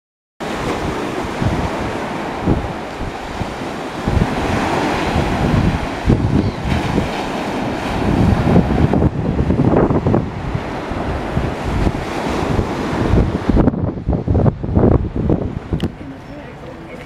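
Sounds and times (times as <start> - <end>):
small waves breaking on a beach: 0.4 - 13.6
wind buffeting the microphone: 0.4 - 17.0.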